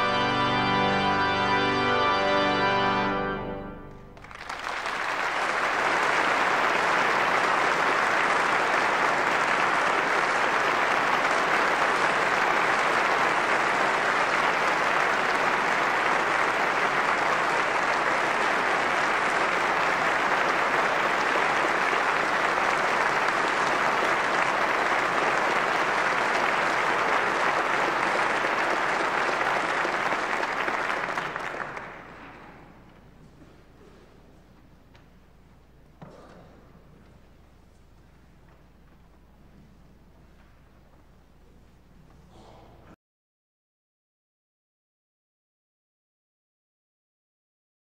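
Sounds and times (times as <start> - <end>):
crowd applauding: 3.8 - 33.0.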